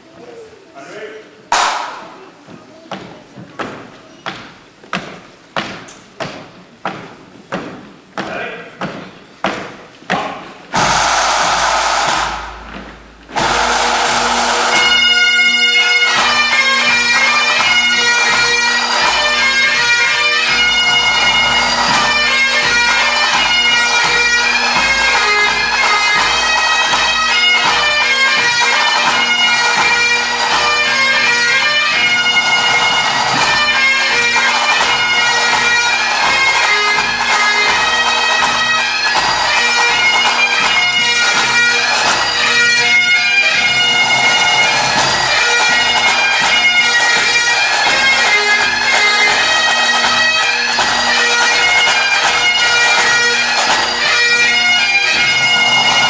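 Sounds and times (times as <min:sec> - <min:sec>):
drum roll: 0:01.5 - 0:02.0, 0:10.7 - 0:15.1
marching drums: 0:01.5 - 0:02.1, 0:07.6 - 0:56.0
bagpipes playing: 0:10.7 - 0:56.0.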